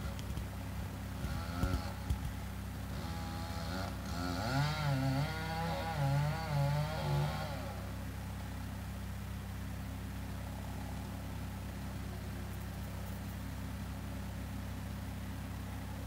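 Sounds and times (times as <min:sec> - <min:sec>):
wood chipper engine running: 0:00.0 - 0:16.0
chainsaw cutting: 0:01.2 - 0:02.3, 0:02.9 - 0:07.9.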